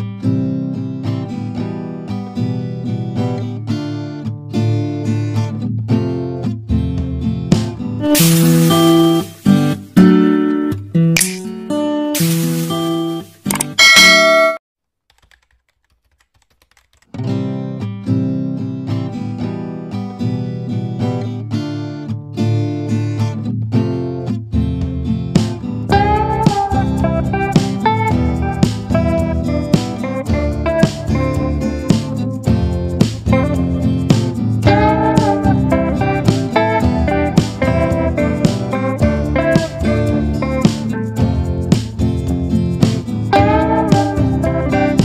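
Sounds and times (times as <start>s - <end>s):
strummed acoustic guitar chords: 0.0s - 14.3s, 17.2s - 45.0s.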